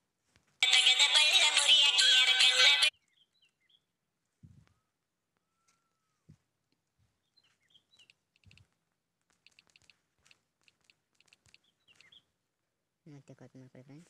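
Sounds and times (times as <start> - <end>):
distant bird chirps: 2.9 - 3.9, 7.1 - 8.7, 9.4 - 12.4
light clicks: 8.0 - 12.2.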